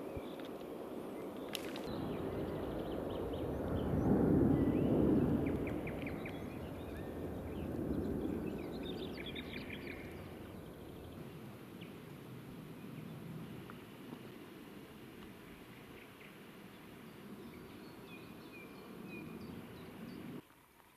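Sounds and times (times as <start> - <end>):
songbirds chirping: 0.0 - 20.4
low rushing noise: 1.8 - 15.0.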